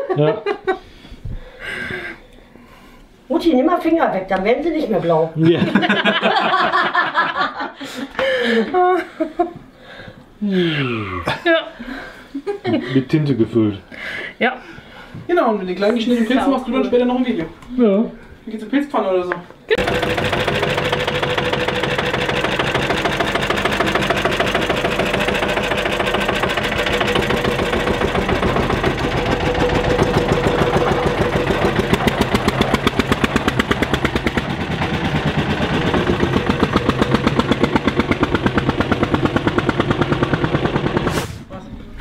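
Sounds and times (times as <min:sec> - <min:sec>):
tractor engine putter: 0:19.8 - 0:41.1.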